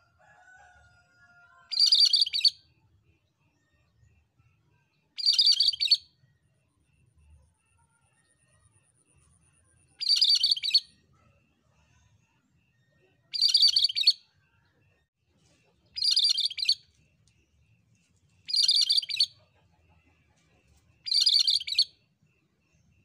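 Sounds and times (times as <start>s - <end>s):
bird singing chirpy phrases: 5.2s - 6.0s, 10.0s - 10.8s, 13.4s - 14.2s, 16.0s - 16.8s, 18.5s - 19.3s, 21.1s - 21.8s.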